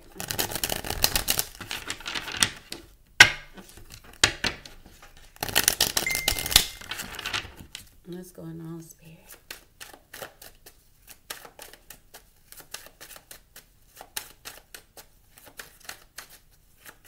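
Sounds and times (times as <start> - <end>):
cards riffle-shuffled: 0.1 - 2.7, 4.8 - 7.9, 9.3 - 17.0.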